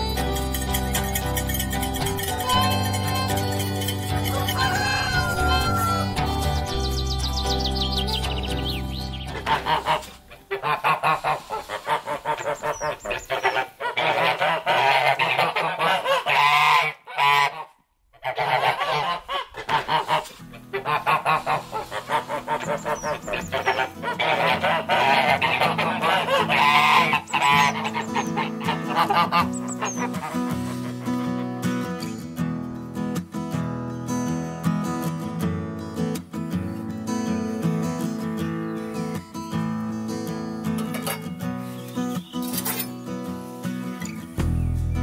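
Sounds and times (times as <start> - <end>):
geese honking: 4.3 - 6.5, 8.5 - 31.5.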